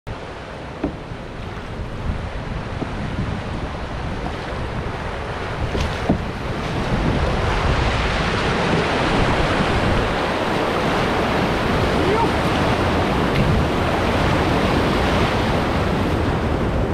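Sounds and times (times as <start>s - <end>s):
rushing whitewater: 0.1s - 16.9s
wind buffeting microphone: 0.1s - 16.9s
knock: 0.8s - 1.0s.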